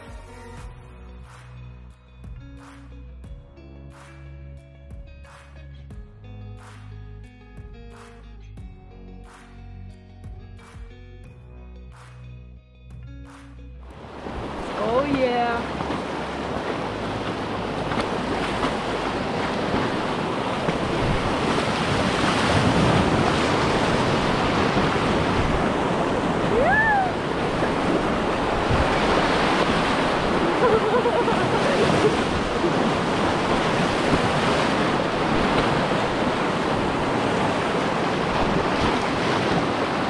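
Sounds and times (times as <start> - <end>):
whitewater rapids rushing: 14.0 - 40.0.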